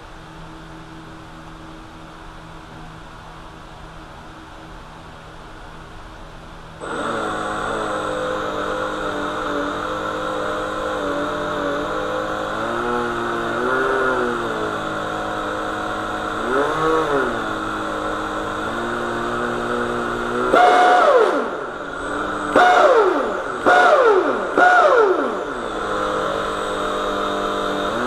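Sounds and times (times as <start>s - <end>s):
electric motor whining: 6.8s - 28.0s
motor throttle blips: 6.8s - 28.0s.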